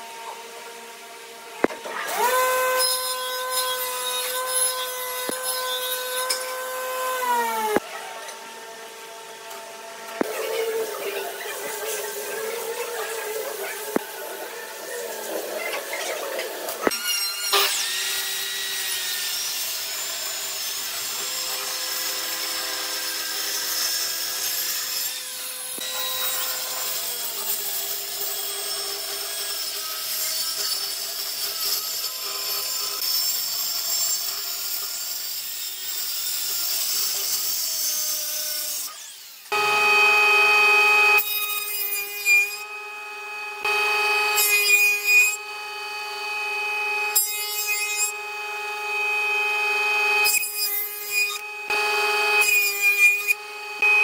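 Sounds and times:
woodworking machine humming: 0.0 - 29.9, 42.0 - 50.2
circular saw cutting wood: 0.0 - 54.0.

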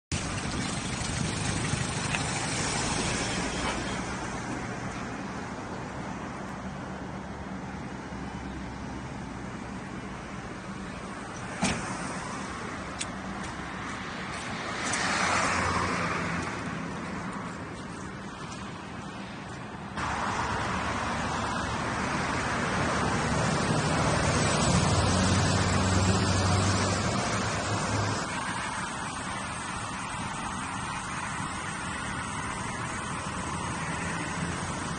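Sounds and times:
tyres hissing on wet road: 0.1 - 5.1, 11.4 - 16.6, 20.0 - 34.9
low engine hum: 0.1 - 14.7.

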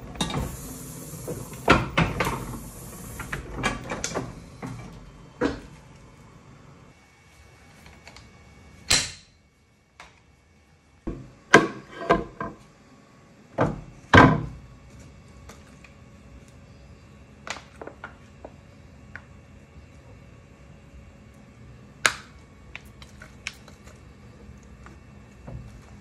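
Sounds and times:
ink rollers knocking and clunking: 0.0 - 5.8.

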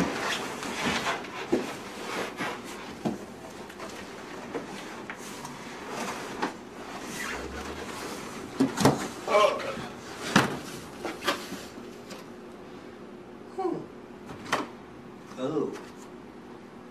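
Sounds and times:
cardboard flaps rustling and scraping: 0.0 - 12.3.

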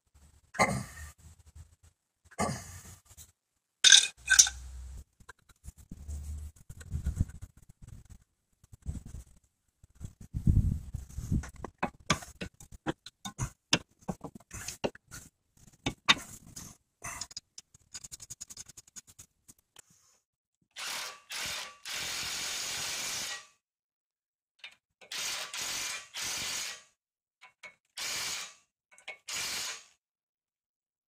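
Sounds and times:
cordless impact wrench bursts: 20.8 - 23.4, 25.1 - 26.9, 28.0 - 28.6, 29.3 - 29.9.

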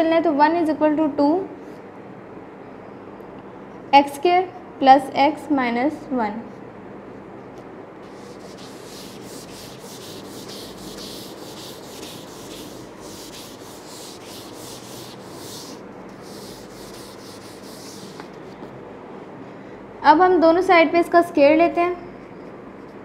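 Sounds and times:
eraser rubbing on whiteboard: 8.0 - 18.6.

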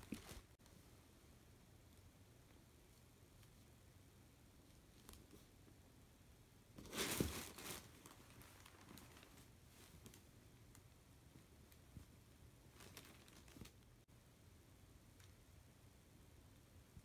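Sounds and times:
fabric rustling: 0.0 - 0.6, 6.8 - 10.3
plastic bag crinkling: 6.8 - 9.5, 12.8 - 13.8.

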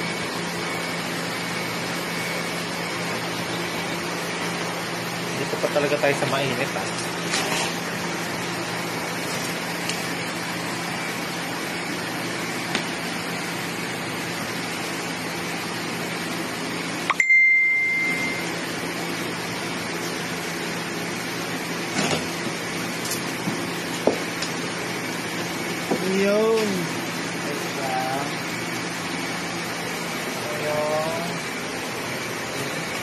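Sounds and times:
steady background hum: 0.0 - 33.0
high beep: 17.1 - 18.6.

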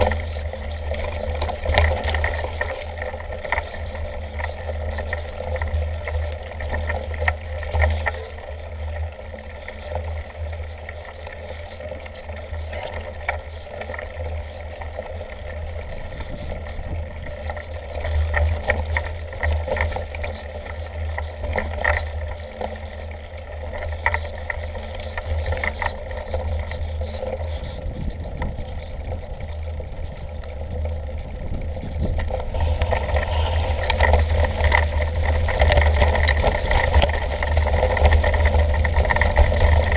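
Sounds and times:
bike rattles and clicks: 0.0 - 39.9
wind rumble on microphone: 0.0 - 39.9.

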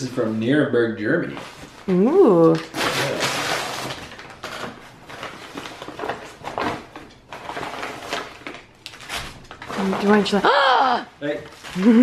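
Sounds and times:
paper mailer crinkling: 2.6 - 10.5.

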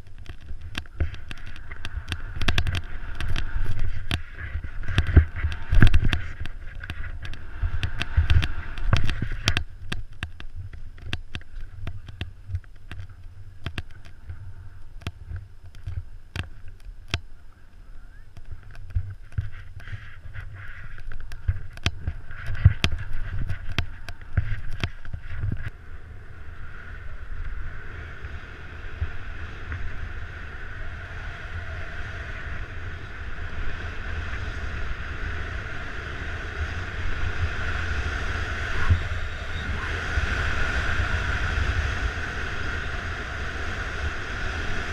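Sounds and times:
skis scraping over snow: 0.0 - 9.7, 19.0 - 44.9
sharp clicks and knocks: 0.0 - 14.4, 18.3 - 25.7
wind buffeting microphone: 0.0 - 17.2, 17.9 - 44.9.

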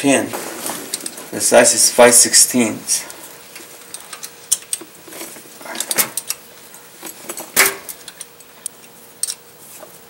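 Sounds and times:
wrench clicking on metal: 9.2 - 9.4.

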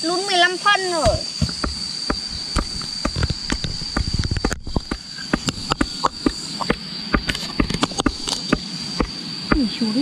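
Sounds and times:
high insect drone: 0.0 - 10.0
stone pounding bamboo pole: 1.0 - 9.7.

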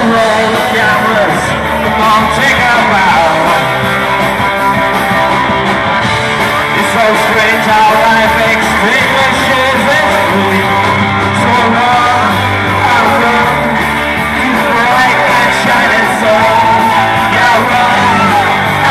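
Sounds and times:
person singing: 0.0 - 4.2, 6.4 - 18.9
bass guitar: 0.0 - 18.9
drums: 0.0 - 18.9
electric guitars: 0.0 - 18.9.

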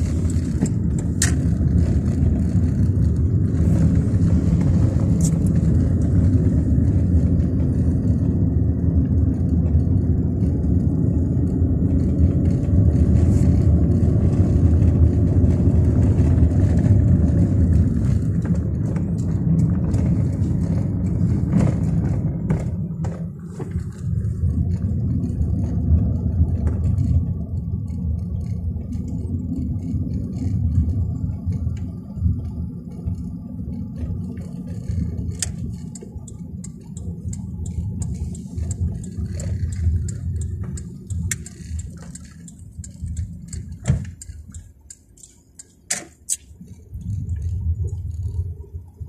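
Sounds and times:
car engine and road rumble: 0.0 - 49.0
sharp clicks: 35.4 - 46.6.

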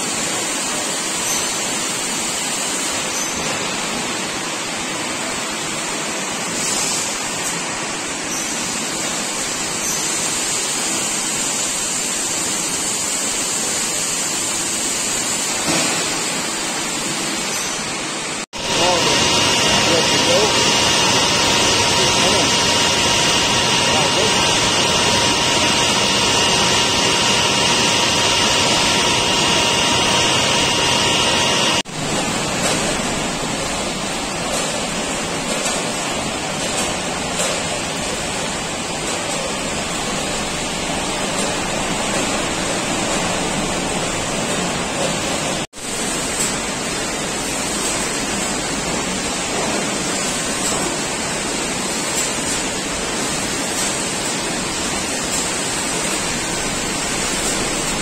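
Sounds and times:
factory machinery and conveyors: 0.0 - 58.0
high two-tone whine: 18.6 - 45.6.

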